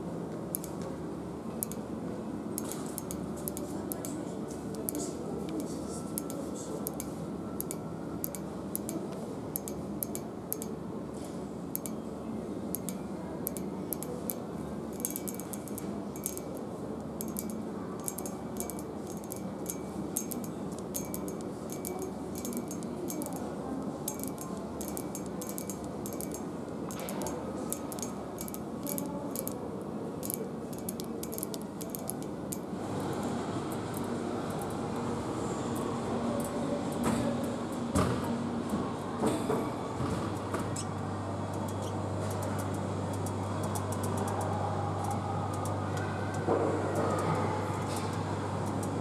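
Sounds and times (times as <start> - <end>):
steady background hum: 0.0 - 49.0
fingernails tapping on metal handrail: 24.1 - 29.6.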